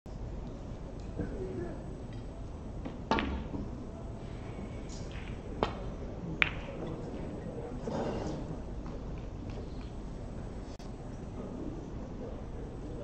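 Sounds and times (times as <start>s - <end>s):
snooker balls clicking: 5.0s - 7.0s.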